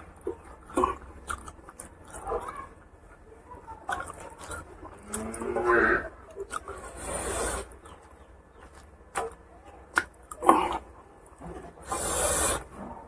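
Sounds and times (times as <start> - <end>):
fingers squelching food: 0.0 - 12.7
mouth clicks and smacks: 6.3 - 10.9
breathy hissing noise: 6.9 - 7.7, 11.8 - 12.9.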